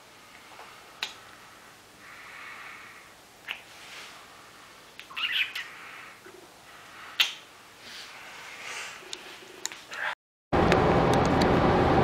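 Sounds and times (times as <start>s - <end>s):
lip smack: 1.0s - 1.2s, 3.4s - 3.7s, 7.2s - 7.4s
squeaky kiss: 3.5s - 3.7s, 7.2s - 7.4s.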